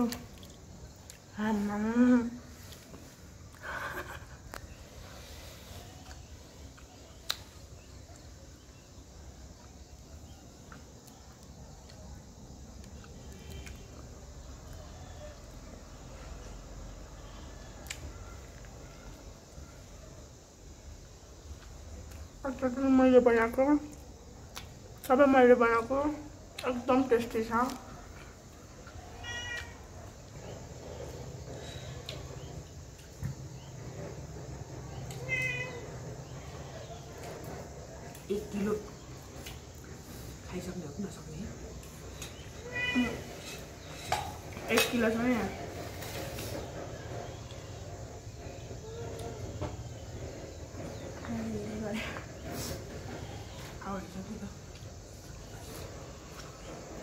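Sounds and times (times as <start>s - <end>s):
low background hum: 0.0s - 57.0s
faint squeaks: 33.4s - 54.6s.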